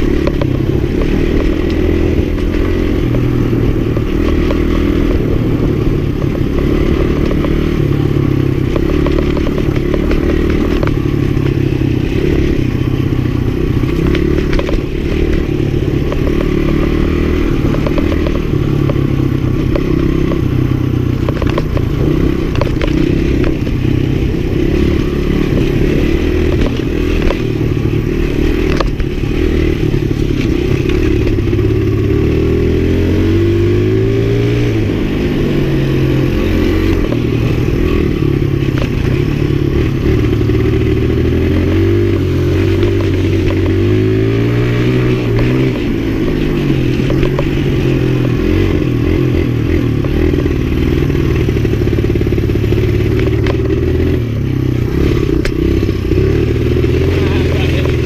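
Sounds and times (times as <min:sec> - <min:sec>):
motorcycle engine revving: 0:00.0 - 0:58.0
bike knocks and rattles: 0:21.0 - 0:23.8.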